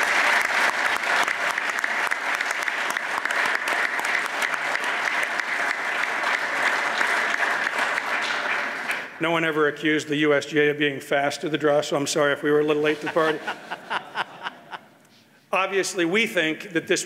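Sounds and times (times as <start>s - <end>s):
crowd applause: 0.0s - 9.2s.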